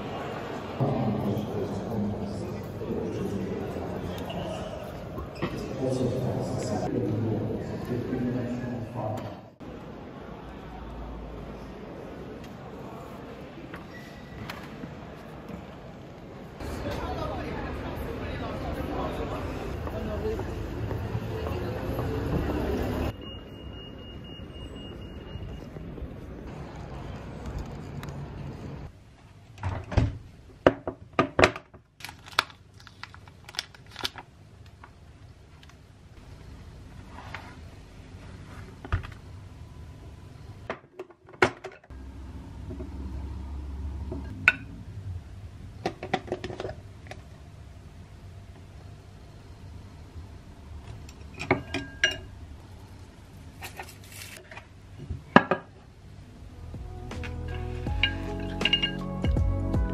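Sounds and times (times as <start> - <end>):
street traffic: 0.0 - 29.3, 41.8 - 59.9
utensils clinking on ceramic bowl: 57.5 - 59.2.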